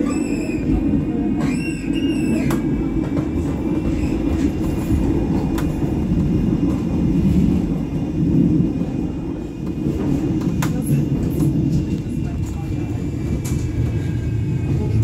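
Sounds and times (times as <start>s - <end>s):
tram wheels rumbling on rails: 0.0s - 15.0s.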